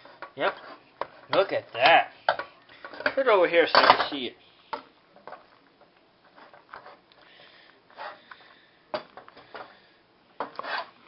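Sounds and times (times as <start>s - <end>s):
spatula stirring macaroni in pot: 0.0s - 4.3s, 5.2s - 7.2s.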